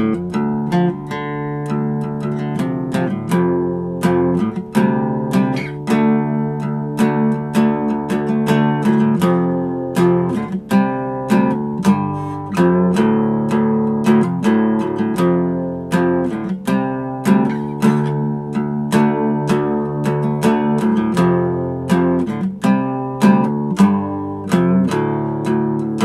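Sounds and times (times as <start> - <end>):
guitar chords strummed: 0.0 - 26.0.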